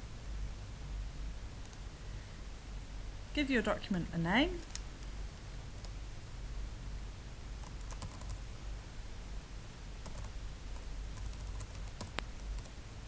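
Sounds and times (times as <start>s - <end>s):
typing on keyboard: 7.6s - 8.4s, 10.0s - 12.7s.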